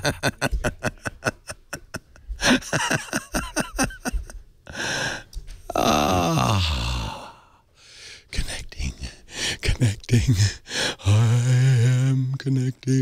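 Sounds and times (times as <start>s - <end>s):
people laughing: 0.0s - 4.3s
hissing breath: 4.7s - 5.3s.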